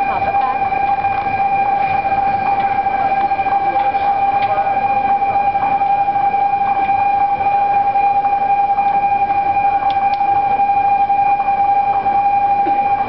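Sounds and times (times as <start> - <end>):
level crossing alarm tone: 0.0 - 13.0.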